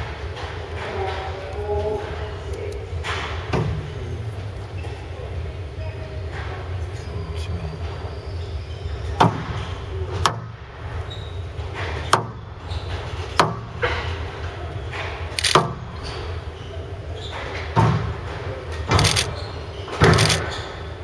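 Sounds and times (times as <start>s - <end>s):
low hum of hall: 0.0s - 21.0s
squash ball hits: 9.2s - 10.6s, 13.2s - 14.2s.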